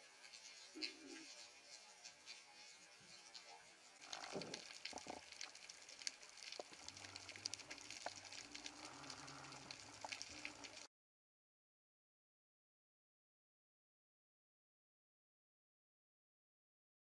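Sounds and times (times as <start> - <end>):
underwater crackling: 0.3 - 10.9.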